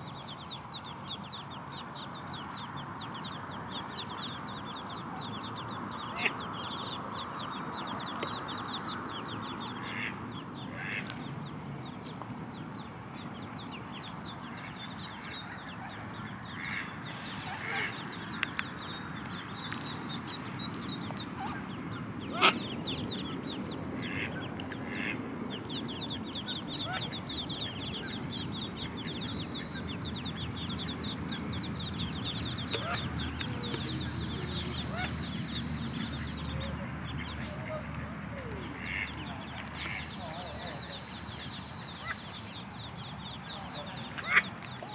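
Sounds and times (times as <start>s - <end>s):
ducklings peeping: 0.0s - 44.9s
duck quacking: 24.0s - 25.2s, 38.8s - 39.1s.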